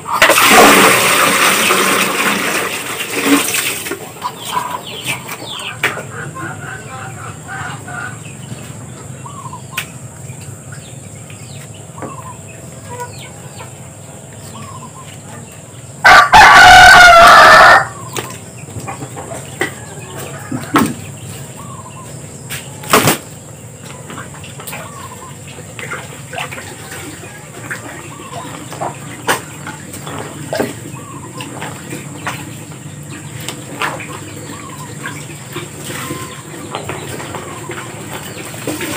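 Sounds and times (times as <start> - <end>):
soft bird calls: 4.2 - 16.0, 17.9 - 38.9
rooster crowing: 16.0 - 18.0, 19.7 - 21.0.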